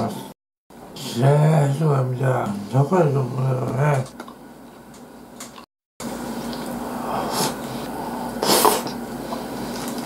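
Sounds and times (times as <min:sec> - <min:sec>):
man chewing food: 0:04.2 - 0:10.0
wet mouth noises: 0:08.4 - 0:09.0.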